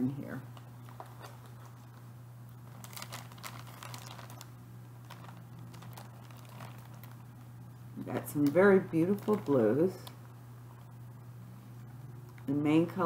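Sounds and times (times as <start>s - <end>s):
steady low hum: 0.0s - 13.0s
plastic bag crinkling: 0.5s - 10.2s.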